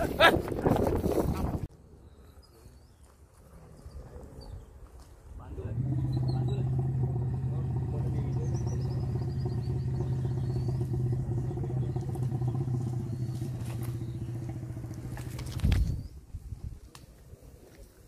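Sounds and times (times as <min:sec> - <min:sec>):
vehicle engine idling: 0:05.6 - 0:16.0.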